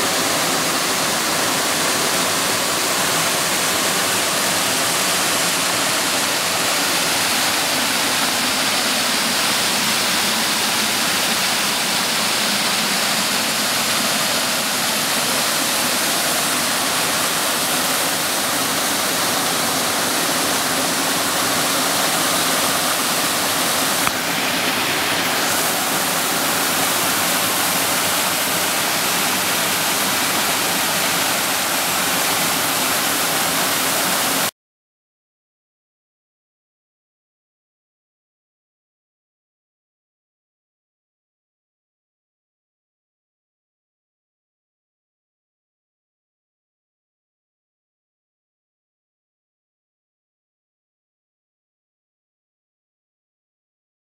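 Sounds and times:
water rushing over rock: 0.0s - 34.5s.

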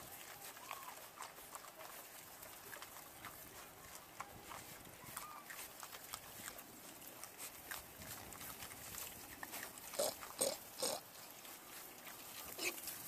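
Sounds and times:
pigs crunching and snuffling: 0.0s - 13.0s
sharp pig calls: 7.2s - 11.2s, 12.4s - 12.9s.

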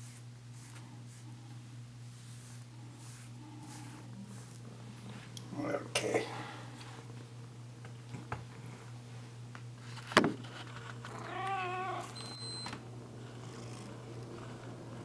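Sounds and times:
cat meowing: 11.1s - 12.2s.

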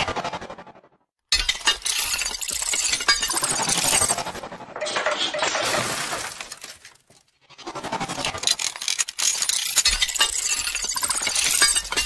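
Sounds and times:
glass shattering: 1.3s - 4.4s, 5.3s - 7.2s, 8.5s - 12.0s.

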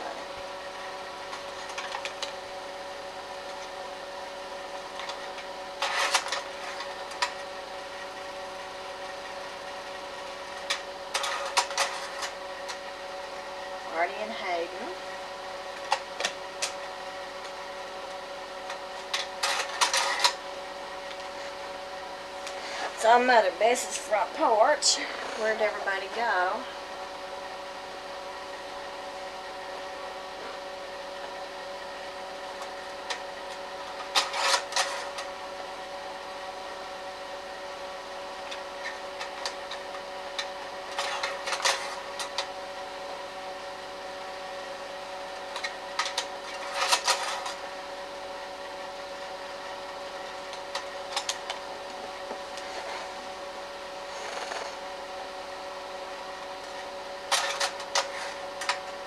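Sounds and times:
movie projector whirring: 0.0s - 59.0s
projector clicking and clatter: 1.3s - 2.4s, 4.9s - 7.4s, 10.5s - 12.9s, 18.6s - 20.4s, 32.6s - 35.3s, 38.5s - 42.5s, 45.5s - 47.6s, 50.5s - 51.6s, 56.7s - 59.0s.

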